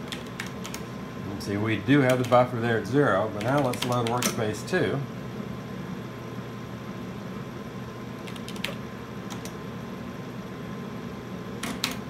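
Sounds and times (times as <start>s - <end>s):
steady low hum: 0.0s - 12.0s
keyboard keys clicking: 8.2s - 9.5s, 11.6s - 12.0s.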